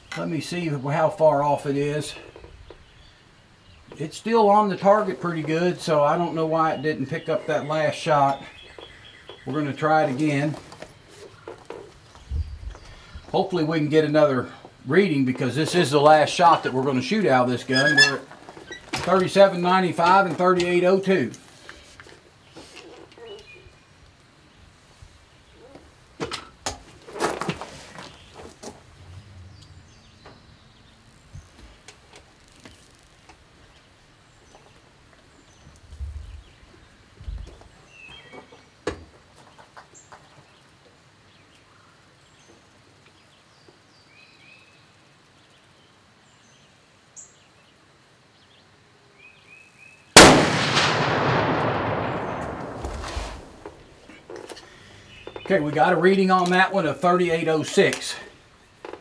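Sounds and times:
bird chirps: 6.5 - 9.8
rifle shot with echo: 50.2 - 54.0.

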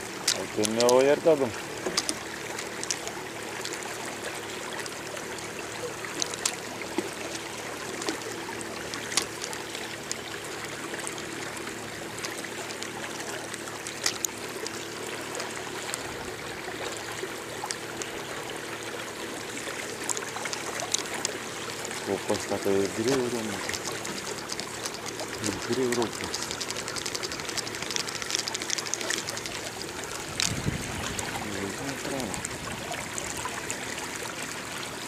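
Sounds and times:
waves lapping against boat: 0.0 - 35.0
faint clicks and knocks: 1.8 - 4.0, 4.8 - 16.1, 19.9 - 32.5.

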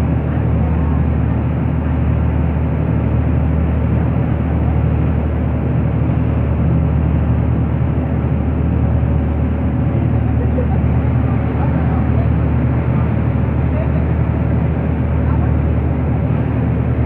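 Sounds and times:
boat engines droning: 0.0 - 17.0.

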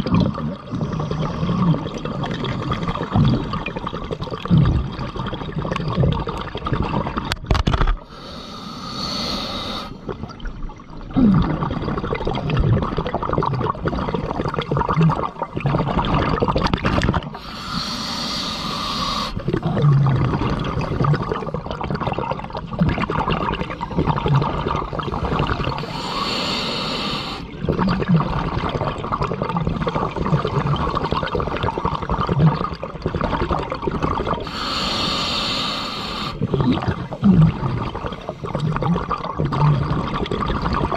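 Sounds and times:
exhaled bubbles burbling: 0.0 - 8.2, 9.8 - 40.9
regulator hissing inhale: 8.0 - 10.0, 17.4 - 19.4, 25.8 - 27.5, 34.4 - 36.5.

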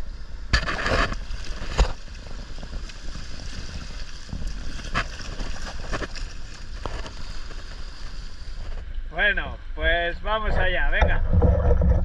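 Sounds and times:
wind rumbling on microphone: 0.0 - 12.0
water sloshing and splashing: 0.6 - 8.8.

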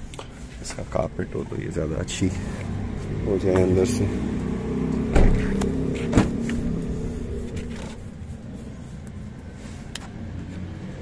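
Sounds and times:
steady low hum: 4.1 - 9.6.

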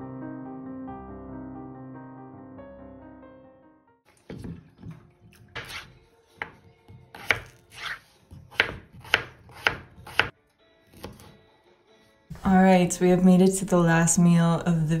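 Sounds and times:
knife chopping on wooden board: 4.3 - 11.4.

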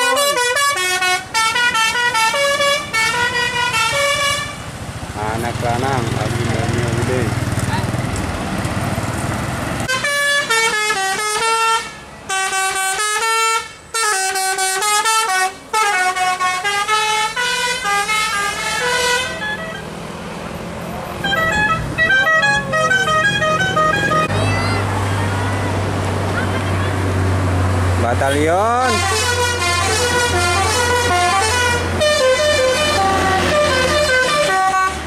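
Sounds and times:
multi-tone bus horn melody: 0.0 - 4.8, 9.9 - 20.0, 21.1 - 25.8, 28.2 - 35.0.

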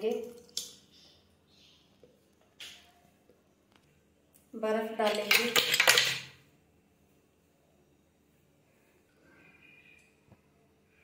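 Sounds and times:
ice cubes clattering into blender: 5.0 - 6.4.

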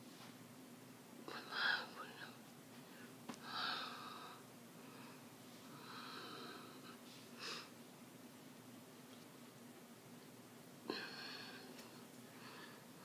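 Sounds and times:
faint steady hum: 0.0 - 13.0
woman breathing: 2.8 - 7.8, 10.9 - 13.0.

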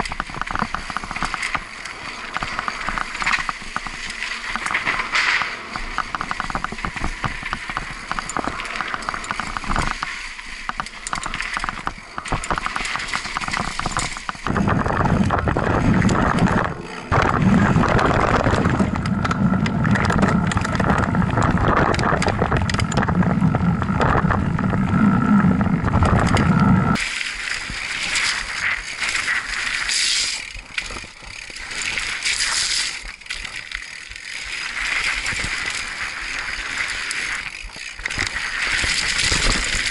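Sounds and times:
bike rattling over bumps: 0.0 - 39.9
bike tyres crunching over gravel: 0.0 - 39.9
deep rumble: 13.8 - 27.0.

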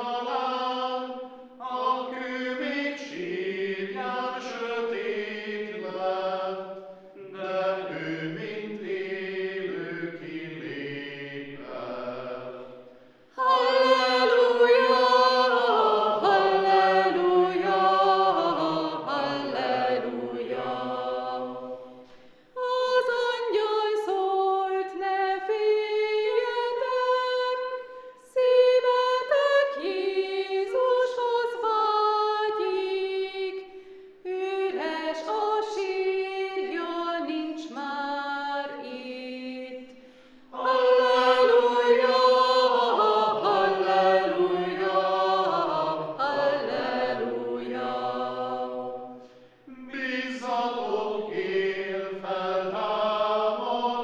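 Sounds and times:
men's voices singing: 0.0 - 12.6, 40.5 - 54.0
choir singing a hymn: 0.0 - 54.0
women's voices singing: 13.4 - 21.8, 22.6 - 33.6, 34.2 - 39.9, 40.5 - 54.0.

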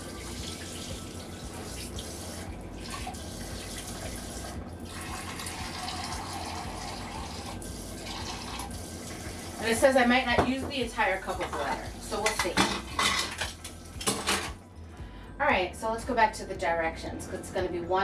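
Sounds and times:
tap water running into cup: 0.0 - 9.8.

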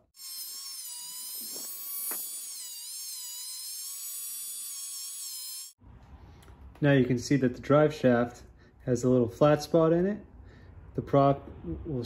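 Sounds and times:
rotary tool grinding steel: 0.0 - 5.8.

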